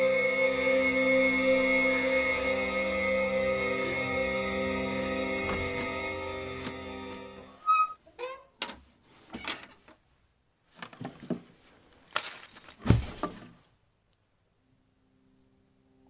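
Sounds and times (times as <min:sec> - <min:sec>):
short squeak: 0:07.6 - 0:08.4
thumps and rustles: 0:10.7 - 0:13.6.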